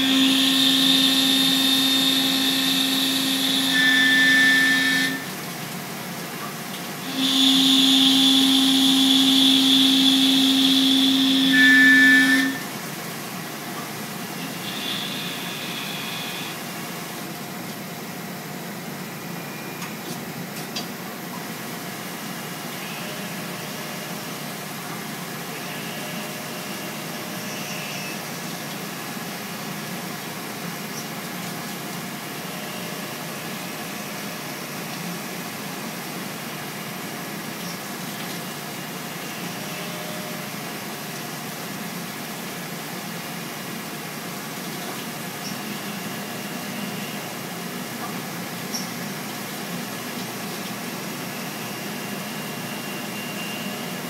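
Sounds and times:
high whine from cutting: 0.0s - 5.4s, 7.0s - 12.8s
milling machine noise: 0.0s - 18.0s
mill spindle and cutter running: 0.0s - 54.0s.

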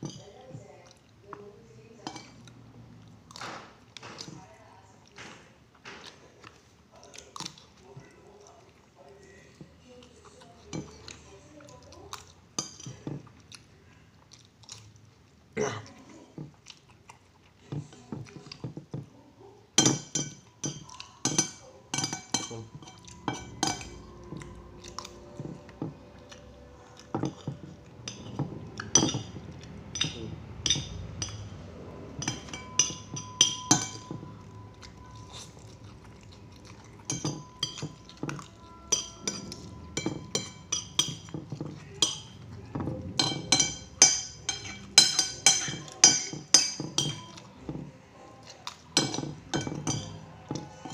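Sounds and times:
chewing: 2.2s - 19.8s, 20.4s - 30.4s, 32.2s - 46.2s, 46.8s - 50.9s
cutlery clinking on ceramic plate: 19.8s - 47.9s, 48.6s - 50.9s.

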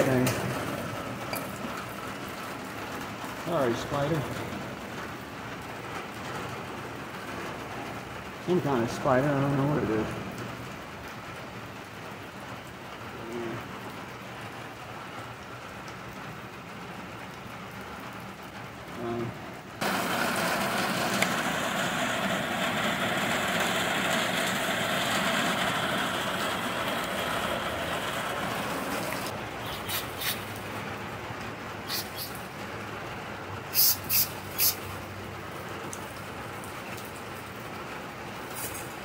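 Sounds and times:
steady spraying hiss: 19.8s - 30.7s, 31.8s - 32.5s, 33.7s - 35.1s, 38.4s - 39.0s.

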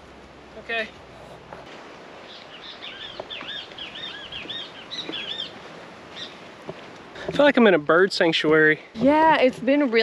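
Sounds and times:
songbird chirping: 2.2s - 8.1s.

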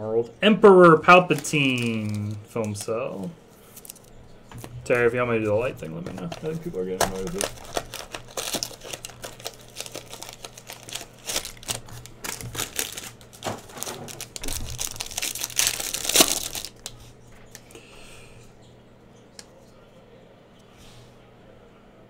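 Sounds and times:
foil wrapper crinkling: 1.0s - 4.2s, 4.8s - 17.7s.

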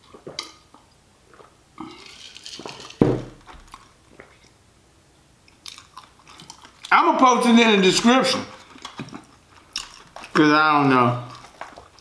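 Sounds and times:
swallowing and mouth sounds: 0.0s - 2.8s, 8.6s - 10.5s
person gulping a drink: 0.0s - 4.6s.

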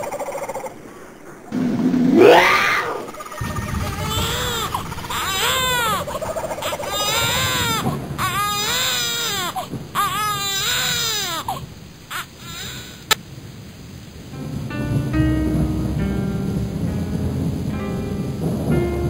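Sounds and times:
newborn baby crying: 3.5s - 13.2s.

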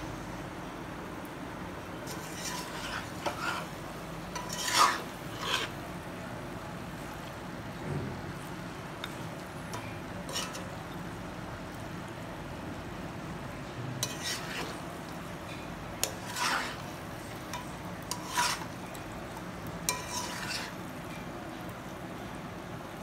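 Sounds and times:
metal spatula scraping pan: 2.1s - 5.8s, 9.7s - 10.7s, 14.0s - 18.9s, 19.8s - 20.8s.

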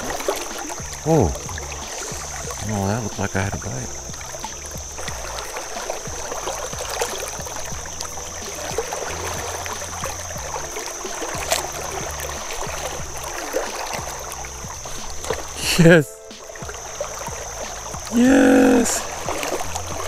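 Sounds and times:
river flowing over rocks: 0.0s - 20.0s.

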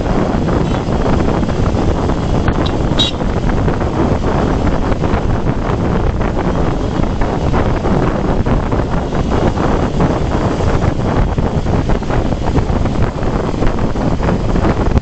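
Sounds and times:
motorcycle engine: 0.0s - 15.0s
road noise: 0.0s - 15.0s
wind buffeting microphone: 0.0s - 15.0s.

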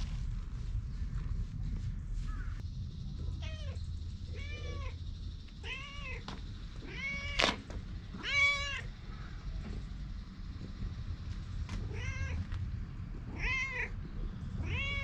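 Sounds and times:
cat meowing: 5.6s - 7.6s, 8.2s - 8.9s, 11.9s - 12.4s, 13.3s - 13.9s, 14.6s - 15.0s.

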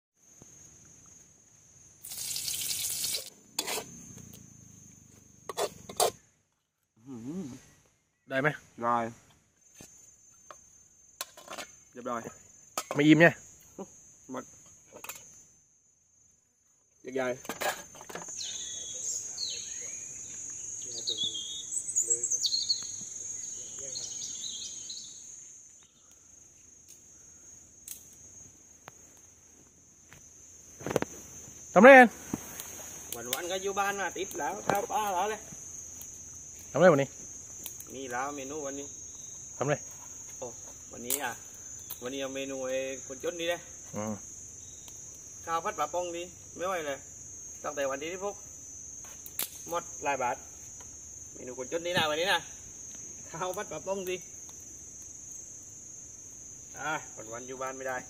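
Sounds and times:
insects droning: 0.2s - 58.0s
food sizzling in a wok: 2.0s - 4.1s
metal spatula scraping wok: 3.6s - 4.0s, 5.5s - 6.2s
birds chirping: 18.3s - 26.6s.

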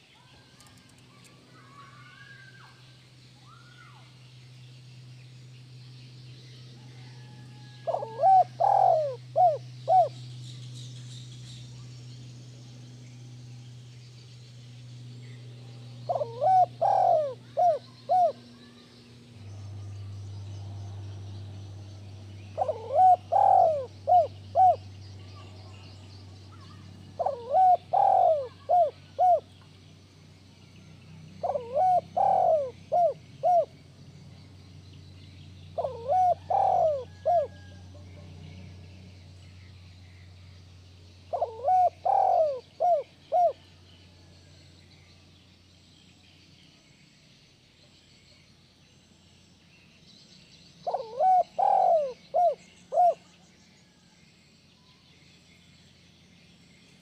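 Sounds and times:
steady low hum: 0.0s - 57.0s
dove cooing: 6.9s - 10.2s, 16.0s - 19.5s, 22.4s - 25.9s, 26.5s - 29.6s, 31.4s - 33.8s, 35.7s - 38.3s, 41.3s - 43.6s, 50.8s - 54.0s.

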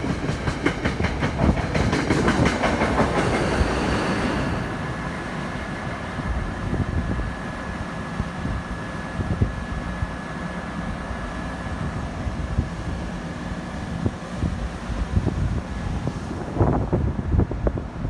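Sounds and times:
train wheel knocks: 0.0s - 3.7s
wind buffeting microphone: 0.0s - 5.1s, 5.8s - 10.2s, 11.7s - 18.0s
train rumbling through station: 0.0s - 18.0s.

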